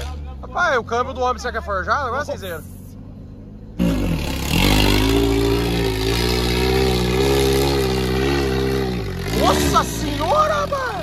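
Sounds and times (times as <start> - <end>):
buggy engine revving hard: 3.7 - 11.0.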